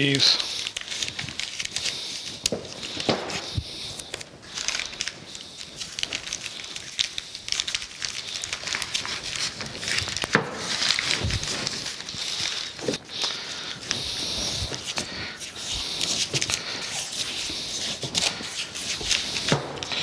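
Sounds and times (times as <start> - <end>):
paper crinkling and rustling: 0.0 - 20.0.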